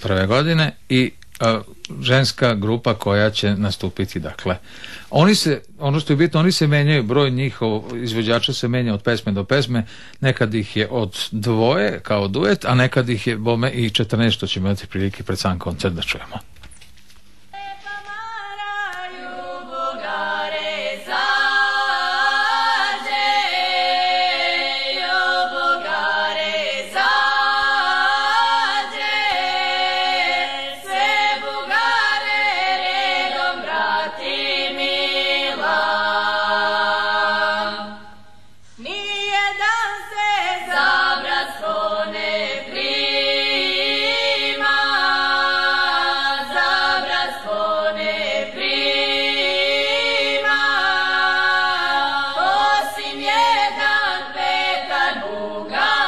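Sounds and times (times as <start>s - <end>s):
women singing unaccompanied: 17.5s - 56.0s.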